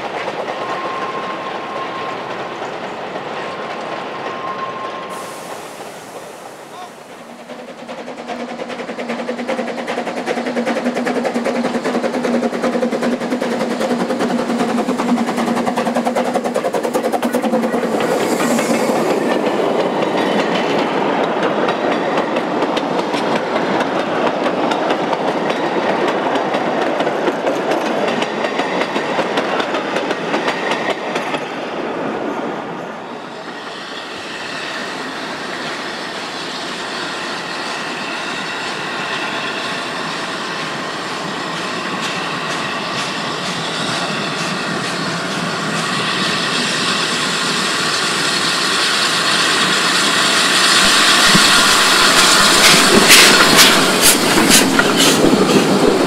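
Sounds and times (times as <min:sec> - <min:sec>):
distant train: 0:00.0 - 0:56.0
train rumbling over rail joints: 0:00.0 - 0:56.0.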